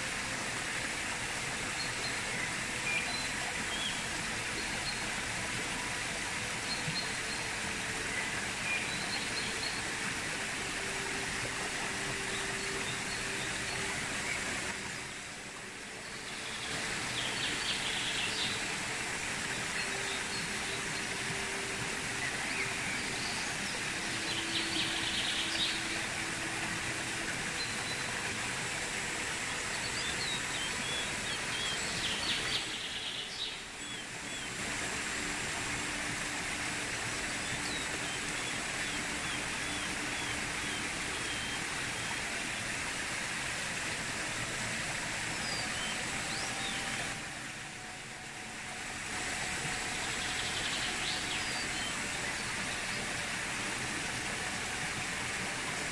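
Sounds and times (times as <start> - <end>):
stream rushing over rocks: 0.0 - 55.9
birds chirping: 6.0 - 34.6, 44.9 - 55.4.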